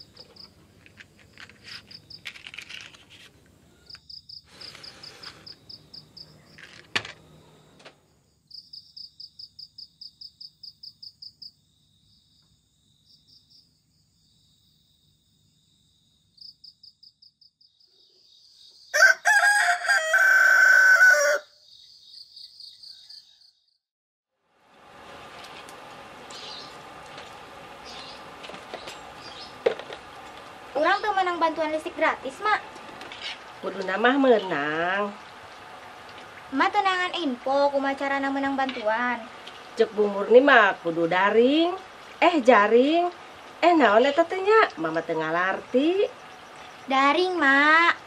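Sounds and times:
rooster crowing: 0:18.9 - 0:21.6.

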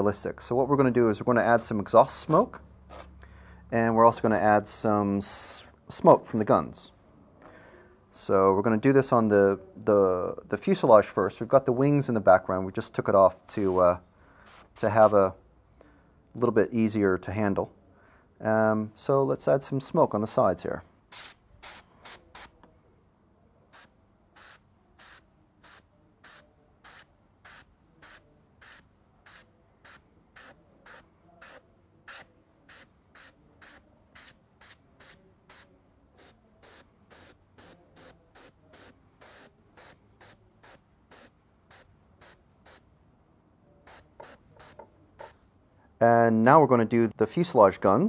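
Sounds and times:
airbrush spraying in short bursts: 0:13.6 - 0:13.8, 0:14.4 - 0:15.2, 0:21.1 - 0:22.5, 0:23.7 - 0:42.8, 0:43.9 - 0:45.4.

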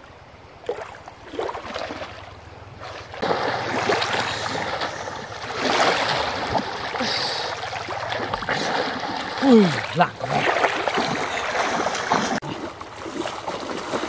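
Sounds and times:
person splashing in river water: 0:00.6 - 0:14.0
shallow water rushing over stones: 0:03.1 - 0:14.0.

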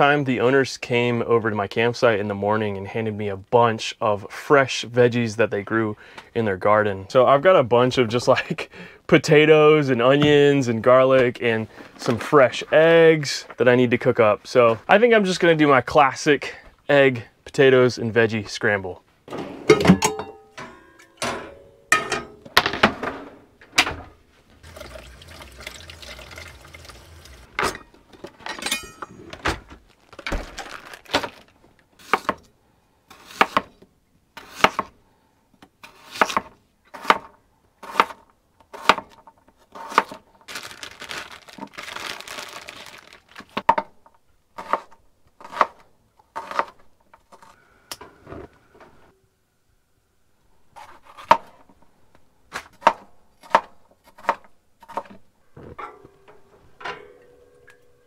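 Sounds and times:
water running from a tap: 0:24.6 - 0:27.5.

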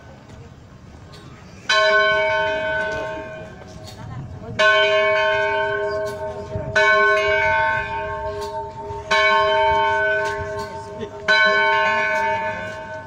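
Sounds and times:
church bell tolling: 0:01.7 - 0:03.6, 0:04.5 - 0:13.0.

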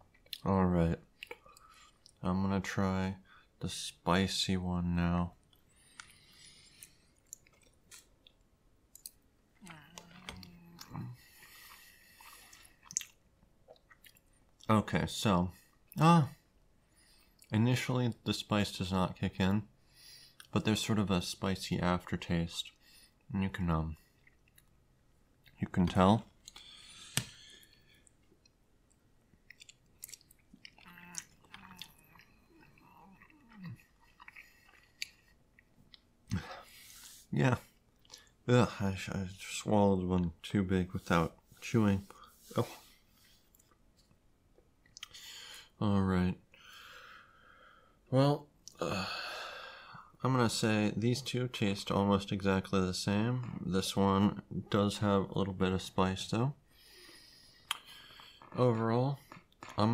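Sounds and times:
person chewing: 0:01.1 - 0:02.2, 0:05.4 - 0:14.7, 0:24.1 - 0:25.6, 0:26.3 - 0:37.1, 0:37.8 - 0:38.4, 0:42.8 - 0:45.7, 0:56.9 - 0:59.8
wet mouth clicks: 0:12.2 - 0:14.3, 0:28.0 - 0:36.1, 0:44.8 - 0:45.2, 0:57.6 - 0:58.6.

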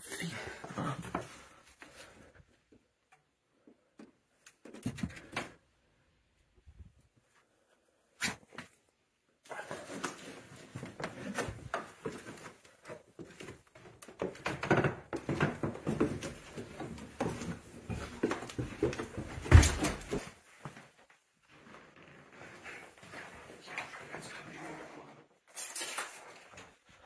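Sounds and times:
rustling and clattering of handling: 0:06.8 - 0:24.6.

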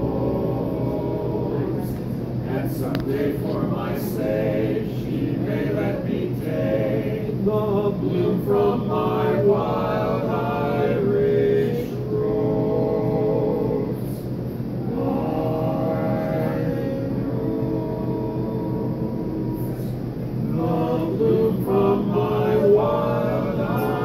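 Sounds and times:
male quartet singing a cappella: 0:00.0 - 0:24.0.

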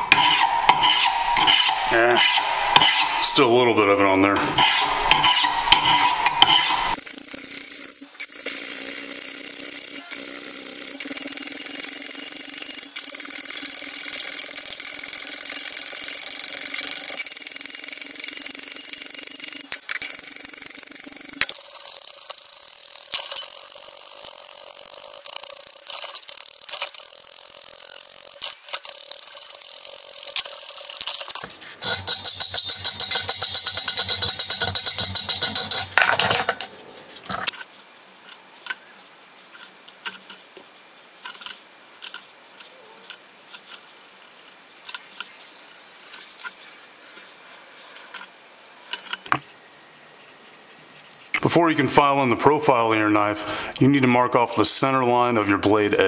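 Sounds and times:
hand file rasping on steel: 0:00.1 - 0:03.2, 0:31.8 - 0:35.9.

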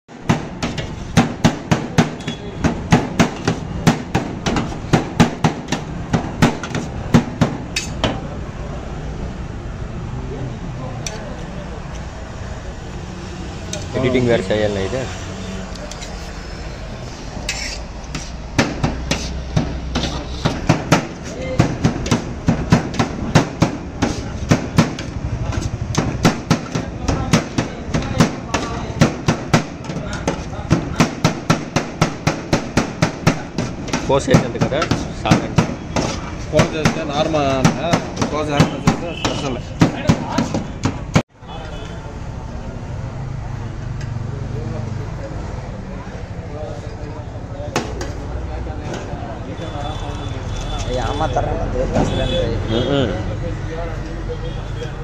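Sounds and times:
spatulas clattering on steel pan: 0:00.3 - 0:08.2, 0:17.5 - 0:31.3
metal spatula clacking on griddle: 0:07.7 - 0:08.2.

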